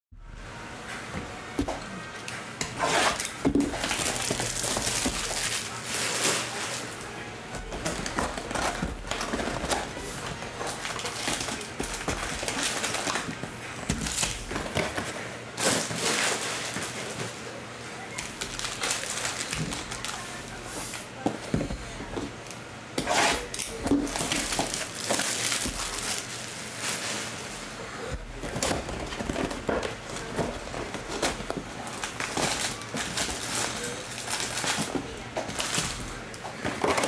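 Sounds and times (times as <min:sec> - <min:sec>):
foil packs rustling: 0:02.7 - 0:37.0
shrink wrap crinkling and tearing: 0:02.8 - 0:17.4, 0:18.0 - 0:21.1, 0:22.4 - 0:37.0.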